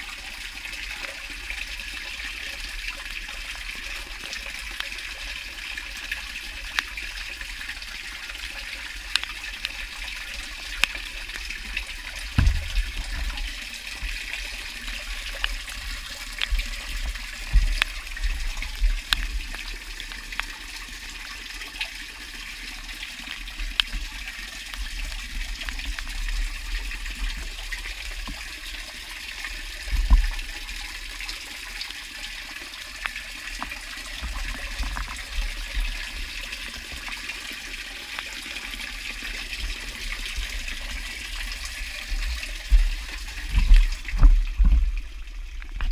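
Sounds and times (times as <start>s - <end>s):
water trickling and dripping: 0.0s - 45.9s
small ticks: 8.8s - 12.2s, 15.1s - 20.6s
low thumps: 12.3s - 13.4s.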